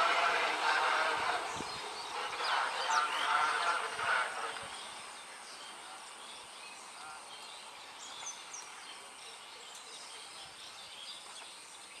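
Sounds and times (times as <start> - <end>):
steady outdoor hiss: 0.0 - 12.0
small birds chirping: 4.4 - 12.0.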